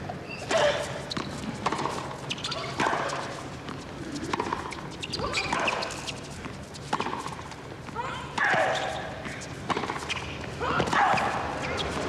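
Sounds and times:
ball bouncing on hard court: 0.5 - 6.0, 6.9 - 12.0
racket hitting tennis ball: 0.5 - 12.0.

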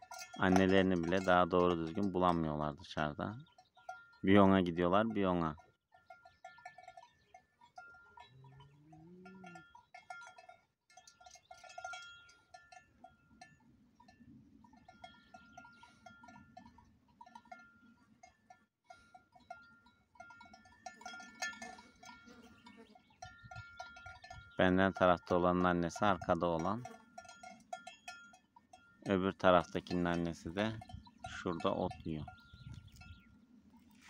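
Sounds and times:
cattle bells clanking: 0.0 - 34.0
cow mooing: 8.3 - 9.7.

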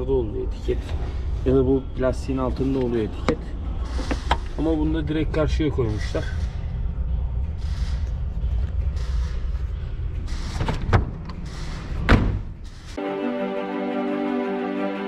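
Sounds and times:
low rumble: 4.7 - 13.0
music with held chords: 13.0 - 15.0.

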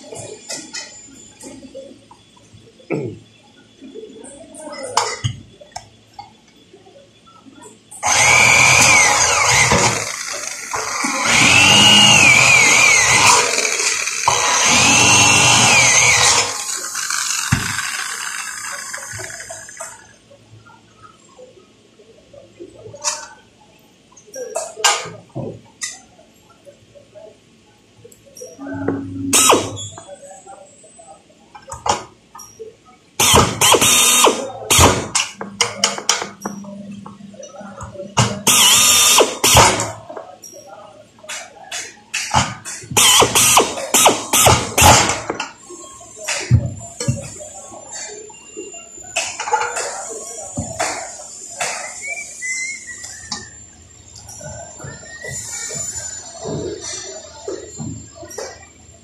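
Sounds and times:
electric drill drilling into metal: 8.0 - 19.8, 29.4 - 29.8, 33.2 - 35.0, 38.5 - 39.8, 43.0 - 45.0.

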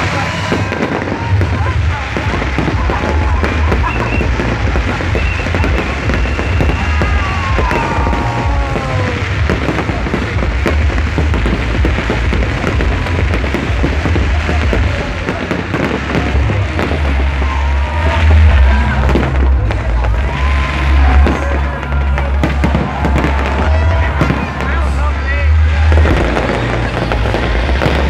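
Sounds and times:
fireworks booming: 0.0 - 28.0
fireworks crackling: 0.0 - 28.0.

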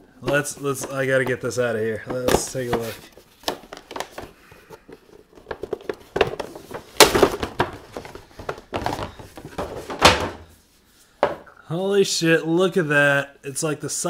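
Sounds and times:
plastic tray crinkling: 0.2 - 10.5
cardboard box rustling: 0.3 - 10.5.

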